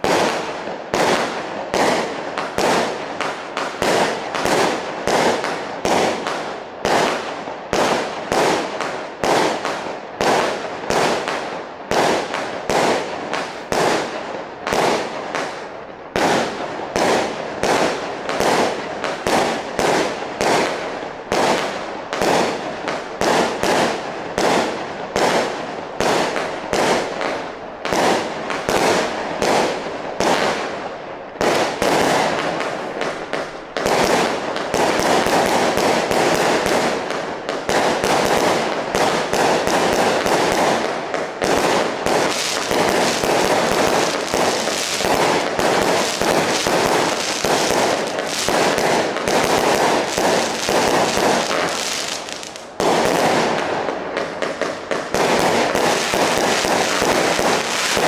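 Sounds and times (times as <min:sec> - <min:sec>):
firework barrage bangs: 0:31.4 - 0:58.0.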